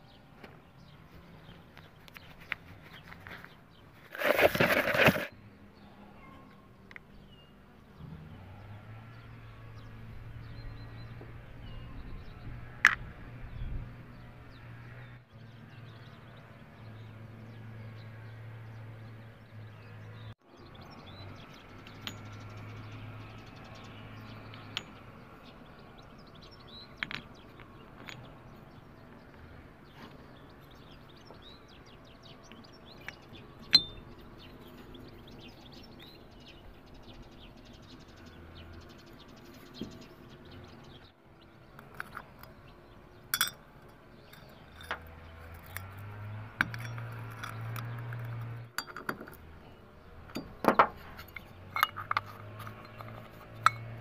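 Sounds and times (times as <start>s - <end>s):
metal parts clinking: 4.1s - 5.3s, 50.4s - 54.0s.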